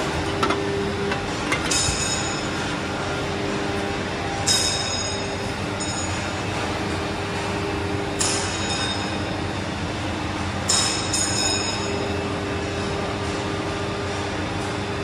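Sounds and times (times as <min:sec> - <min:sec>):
machine hum: 0:00.0 - 0:04.5
steel pipe clinking on metal: 0:00.1 - 0:02.5.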